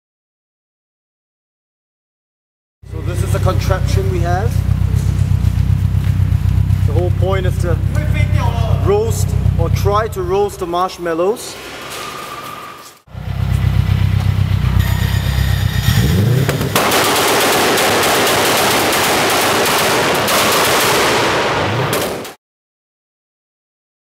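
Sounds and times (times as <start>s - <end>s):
car exhaust rumbling: 2.8s - 11.0s, 13.1s - 20.2s.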